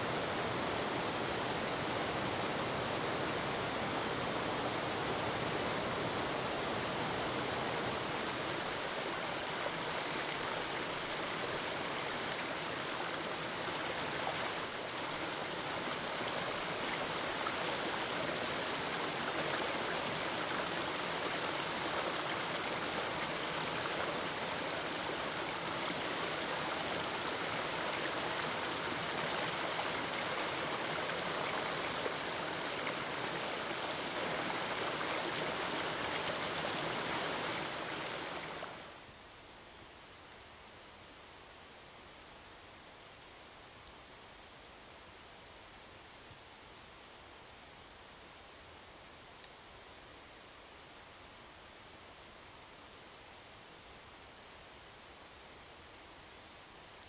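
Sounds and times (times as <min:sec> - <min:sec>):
stream running over rocks: 0:00.0 - 0:39.1.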